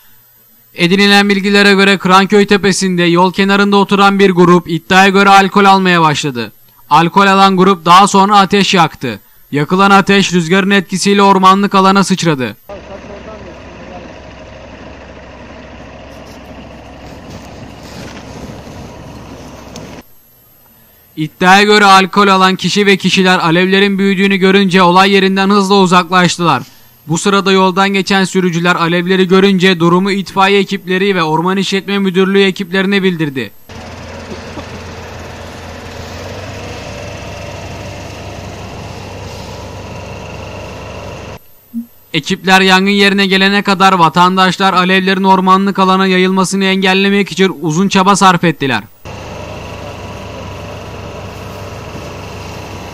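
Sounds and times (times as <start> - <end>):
continuous hiss: 0.0 - 52.9
fire engine droning: 12.7 - 20.1, 33.6 - 41.4, 48.9 - 52.9.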